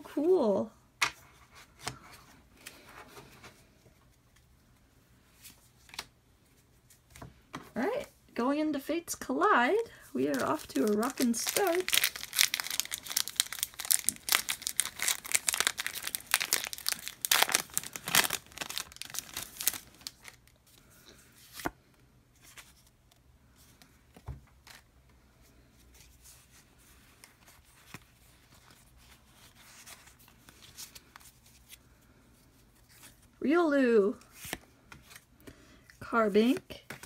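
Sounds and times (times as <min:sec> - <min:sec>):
foil wrapper tearing and crinkling: 0:10.2 - 0:20.5.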